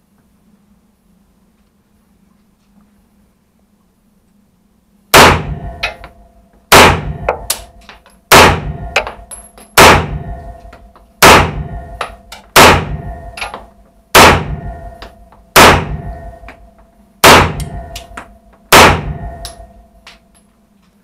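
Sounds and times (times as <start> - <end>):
gunshots echoing: 5.1 - 6.0, 6.7 - 7.7, 8.3 - 9.1, 9.8 - 10.4, 11.2 - 13.4, 14.1 - 14.9, 15.6 - 16.3, 17.2 - 18.0, 18.7 - 19.7
metallic clinks and ringing: 8.9 - 9.8.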